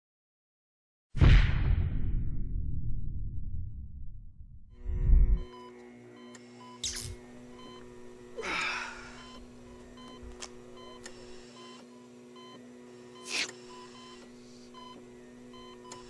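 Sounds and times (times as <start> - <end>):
steady electrical hum: 4.8 - 16.0.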